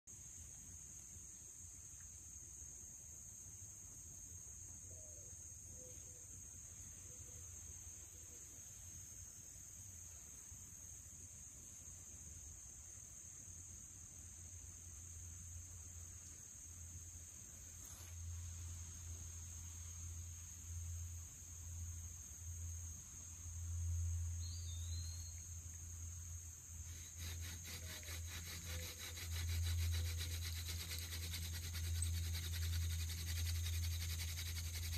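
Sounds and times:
insects trilling: 0.2s - 34.9s
bird chirp: 24.4s - 25.6s
hand drill rubbing on wood: 26.9s - 34.9s.

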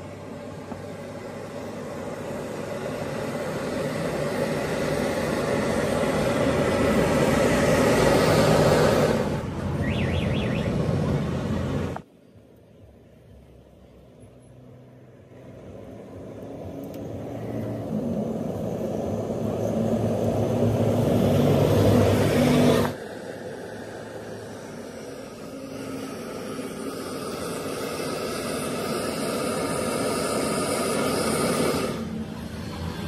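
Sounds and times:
gas burner flame roaring: 0.0s - 12.1s, 12.7s - 33.0s.

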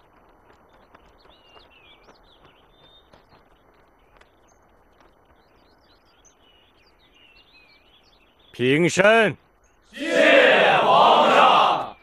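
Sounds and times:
faint ticks and taps: 0.0s - 5.7s
low outdoor hiss: 0.0s - 12.0s
small birds chirping: 0.0s - 12.0s.

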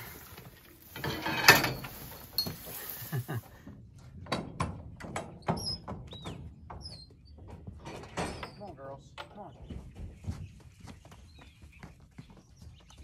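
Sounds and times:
metal stanchion clanking: 0.0s - 2.9s
footsteps on dirt: 0.0s - 4.2s, 9.6s - 13.0s.

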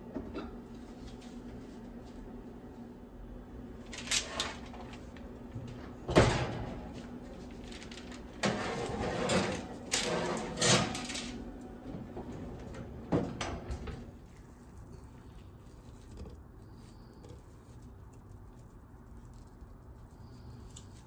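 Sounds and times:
tray scraping on oven rack: 7.8s - 14.1s
metal tray clattering: 8.4s - 11.4s.

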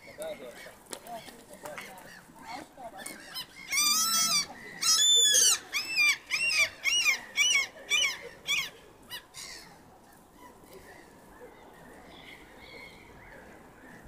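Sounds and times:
gull yelping calls: 3.3s - 9.6s.

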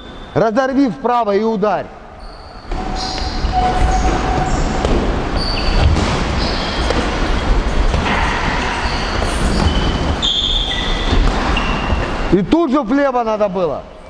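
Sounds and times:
shoes squeaking: 2.2s - 12.5s
sharp knocks: 2.7s - 12.4s.

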